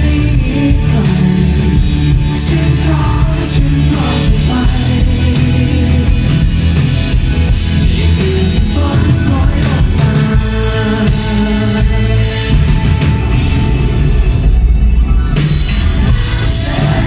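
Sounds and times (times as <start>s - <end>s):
man singing: 0.0s - 6.6s, 7.7s - 12.9s, 16.0s - 17.0s
live rock band playing: 0.0s - 17.0s.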